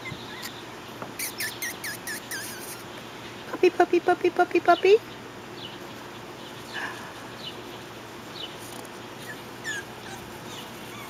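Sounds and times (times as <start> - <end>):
puppies whimpering: 0.0 - 0.6, 1.2 - 2.8, 9.1 - 11.0.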